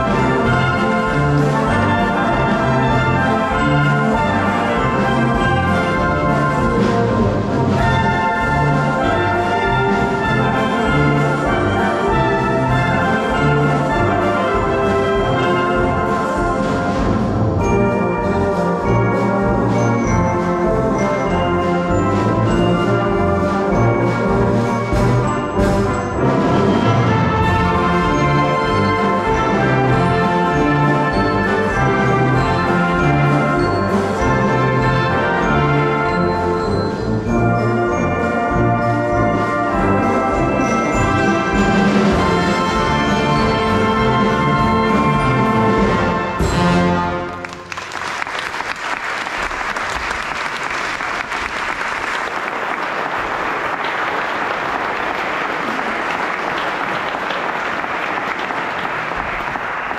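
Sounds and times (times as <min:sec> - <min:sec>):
brass band playing: 0:00.0 - 0:59.9
audience applause: 0:47.1 - 0:59.9.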